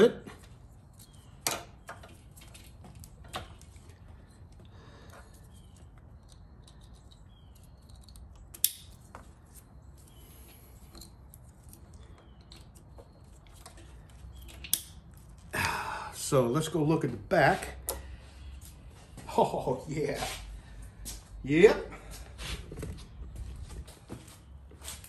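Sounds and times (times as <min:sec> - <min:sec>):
plastic connectors clicking: 0:05.7 - 0:09.2.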